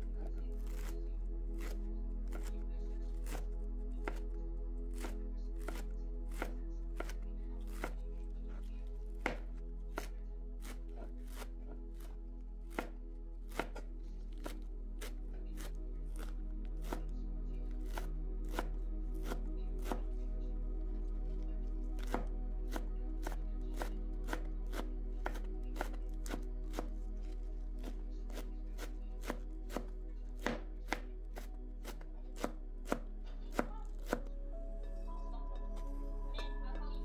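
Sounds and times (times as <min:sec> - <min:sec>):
knife chopping on plastic board: 0:01.6 - 0:02.6, 0:04.0 - 0:04.2, 0:05.0 - 0:08.0, 0:09.2 - 0:11.5, 0:12.7 - 0:15.1, 0:22.0 - 0:26.9, 0:28.3 - 0:34.3.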